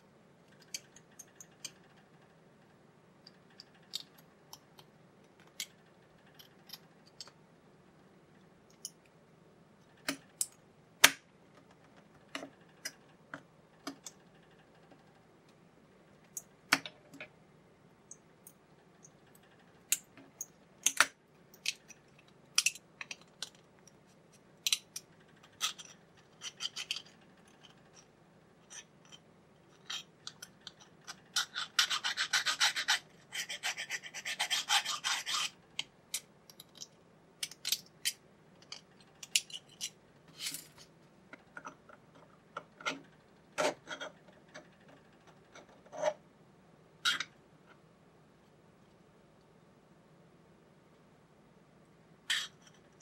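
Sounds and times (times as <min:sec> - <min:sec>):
chisel blade scraping plastic: 0:29.8 - 0:35.6.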